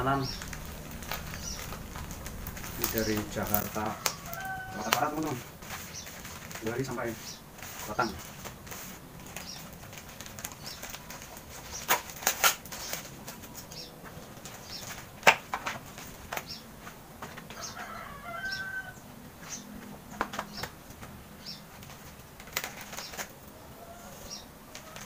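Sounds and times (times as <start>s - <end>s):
plastic rustling with snaps: 0.0s - 18.0s, 19.4s - 25.0s
blade cutting plastic wrapping: 0.1s - 16.6s, 21.8s - 23.4s.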